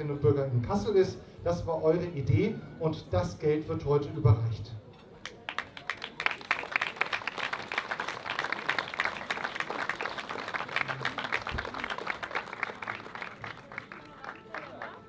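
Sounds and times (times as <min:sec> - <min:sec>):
audience applauding: 0:05.2 - 0:15.0.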